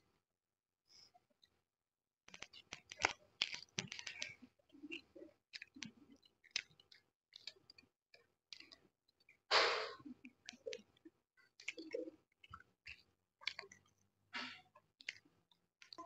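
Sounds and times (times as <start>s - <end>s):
chewing chicken: 2.3s - 9.4s, 10.0s - 16.0s.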